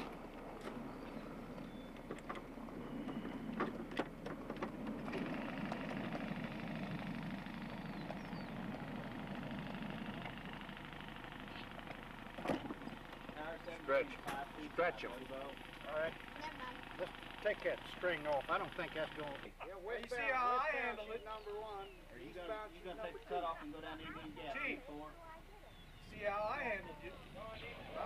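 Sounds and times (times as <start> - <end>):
miniature train wheels rumbling: 0.0 - 13.6.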